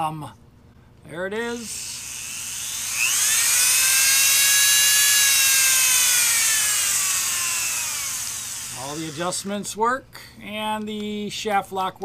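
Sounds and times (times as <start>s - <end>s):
rotary tool motor whine: 1.6s - 9.6s.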